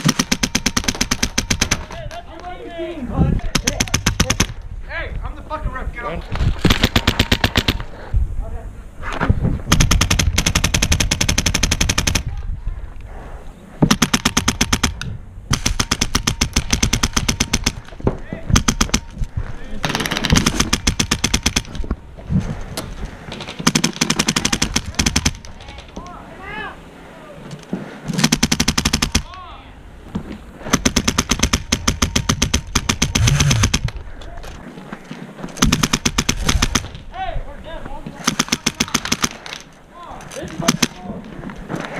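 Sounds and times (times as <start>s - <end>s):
airsoft rifle automatic fire: 0.0s - 1.9s, 6.6s - 7.8s, 9.7s - 12.3s, 13.9s - 17.8s, 18.5s - 19.1s, 19.8s - 21.8s, 23.6s - 25.4s, 28.2s - 29.3s, 30.7s - 33.9s, 35.6s - 37.0s, 38.2s - 39.5s
airsoft rifle firing full auto: 30.7s - 33.9s.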